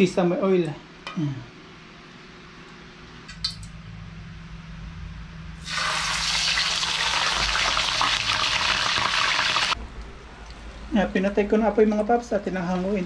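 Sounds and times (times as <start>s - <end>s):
fish sizzling in hot oil: 5.6s - 9.8s.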